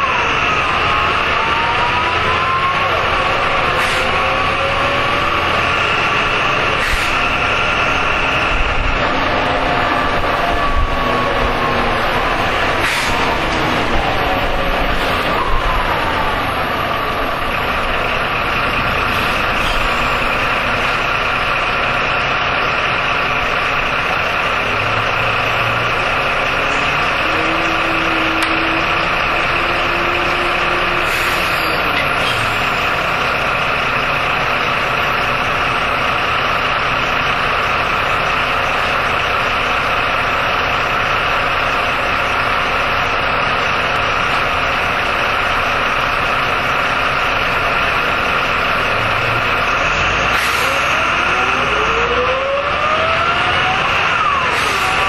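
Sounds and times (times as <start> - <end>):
bus engine idling: 0.0 - 55.0
steady whine: 5.8 - 22.1.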